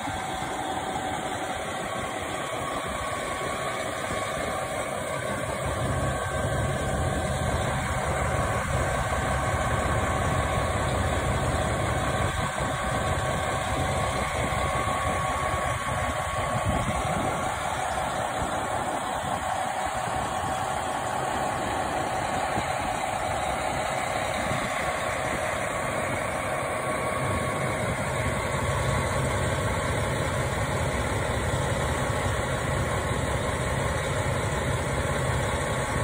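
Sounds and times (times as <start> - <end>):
diesel railcar engine idling: 0.0 - 36.0
steady whine: 0.0 - 36.0.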